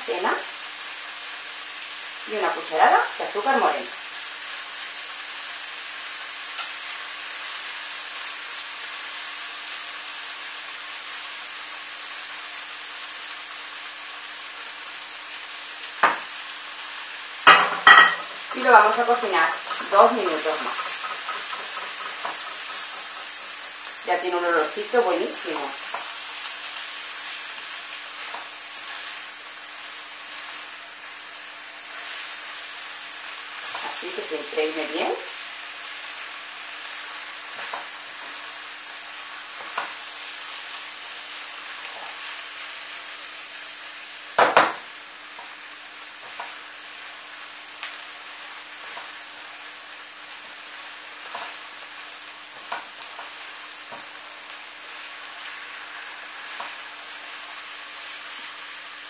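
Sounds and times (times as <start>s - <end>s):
food sizzling in a wok: 0.0s - 59.0s
spatula scraping a pan: 17.4s - 24.3s
spatula stirring in a wok: 17.4s - 34.2s, 48.2s - 59.0s.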